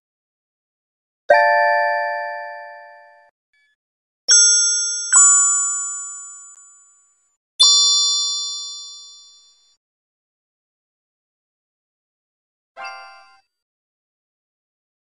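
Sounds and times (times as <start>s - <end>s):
electronic alert chime tones: 12.8s - 13.4s.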